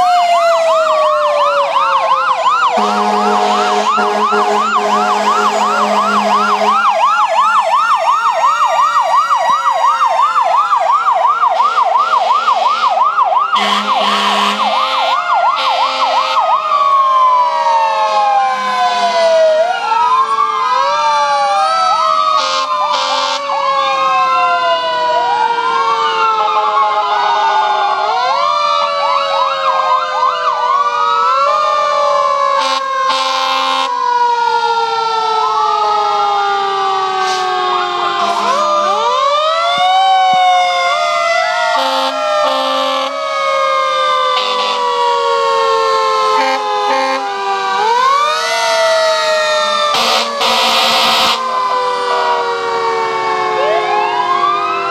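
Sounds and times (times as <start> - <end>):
siren yelping: 0.0 - 54.9
sirens wailing: 0.0 - 54.9
horn blasts: 2.8 - 7.1, 13.6 - 16.1, 38.1 - 39.1, 41.8 - 43.2, 44.4 - 44.8, 46.4 - 47.2, 49.9 - 51.5.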